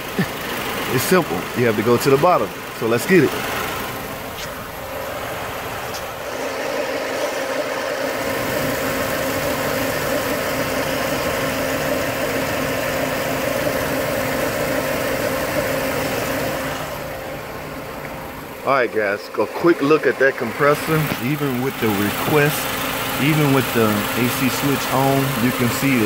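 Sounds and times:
car engine idling: 0.0s - 26.0s.

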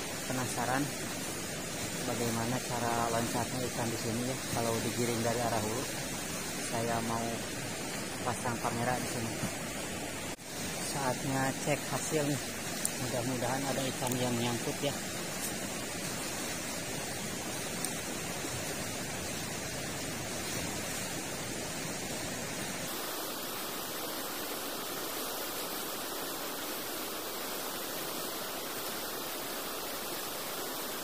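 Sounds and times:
river rushing: 0.0s - 31.0s.

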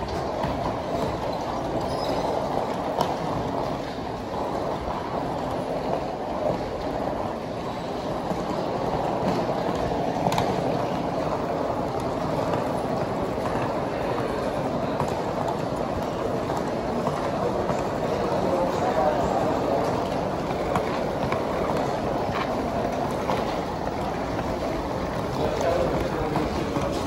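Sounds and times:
suitcase wheels rolling on hard floor: 0.0s - 27.0s.

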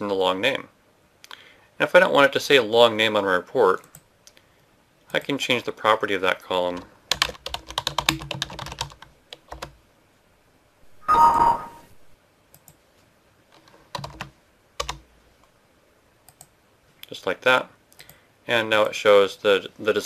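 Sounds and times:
keyboard typing: 7.1s - 9.8s, 13.6s - 15.0s
computer alert chime: 11.0s - 12.0s.

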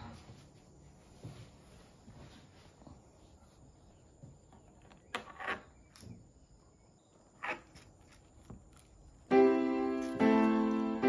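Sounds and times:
piano music: 9.3s - 11.0s.

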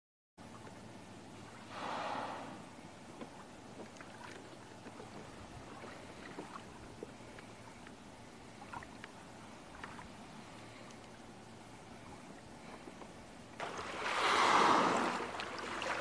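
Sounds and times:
water lapping and dripping: 2.7s - 16.0s
short whooshing rush: 14.0s - 15.2s.

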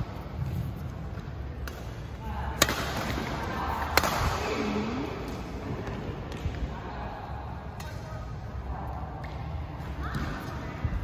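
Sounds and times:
racket hitting shuttlecock: 1.6s - 4.4s.

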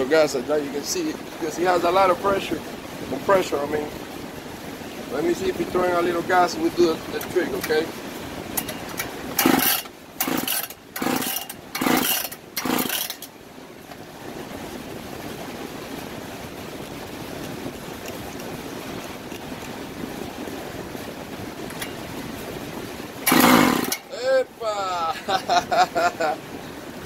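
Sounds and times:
steady background hiss: 0.0s - 27.0s
recoil starter yanked: 7.2s - 7.9s, 8.5s - 13.3s, 21.7s - 22.1s, 23.2s - 24.1s
engine trying to fire: 8.5s - 13.3s, 23.2s - 24.1s.

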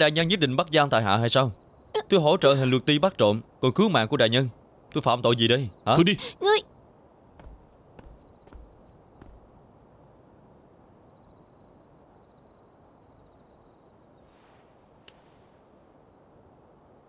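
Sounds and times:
crickets chirping: 0.0s - 15.2s, 15.9s - 17.0s
low hiss: 0.0s - 17.0s.

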